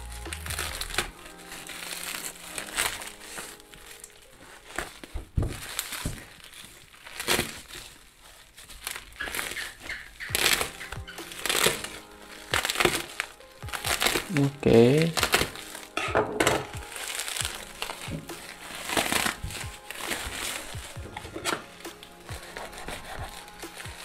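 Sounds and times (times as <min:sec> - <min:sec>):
plastic crinkling and rustling: 0:00.0 - 0:24.0
scissors snipping plastic: 0:08.6 - 0:24.0.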